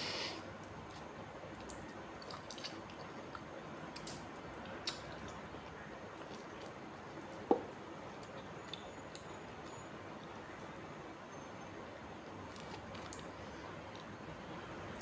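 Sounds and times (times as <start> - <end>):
lip smacks: 1.6 - 5.4
wet chewing and sucking: 12.5 - 14.1.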